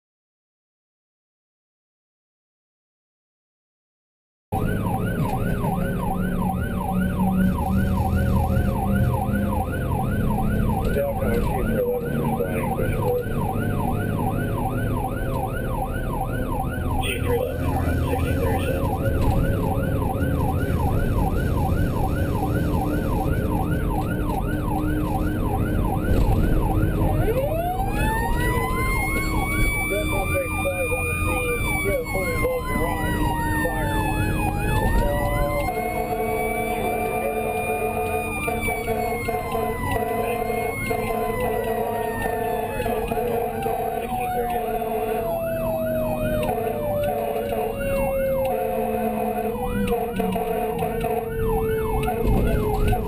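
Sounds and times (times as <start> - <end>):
rising siren tone: 4.6 - 53.0
siren on rapid yelp: 4.6 - 53.0
vehicle driving on road: 4.6 - 53.0.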